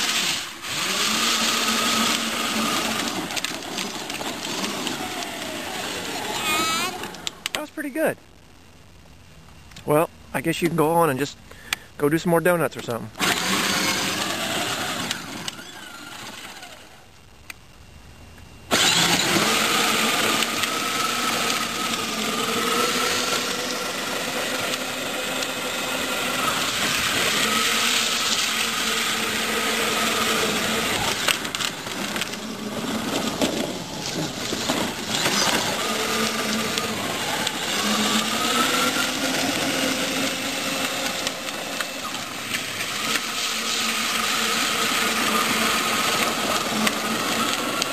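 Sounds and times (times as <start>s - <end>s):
toy car electric motor whine: 0.0s - 7.5s, 13.2s - 17.0s, 18.7s - 47.9s
steady hiss: 1.4s - 13.3s.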